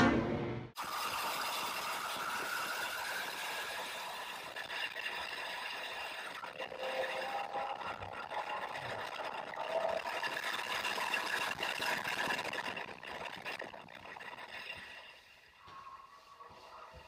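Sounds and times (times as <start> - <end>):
distorted racing car engine: 2.0 - 15.2.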